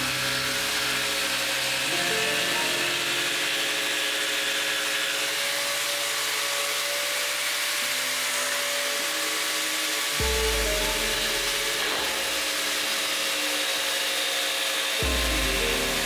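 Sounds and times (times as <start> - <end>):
background music: 0.0 - 3.8, 10.2 - 13.0, 15.0 - 16.0
scroll saw cutting plywood: 0.0 - 16.0.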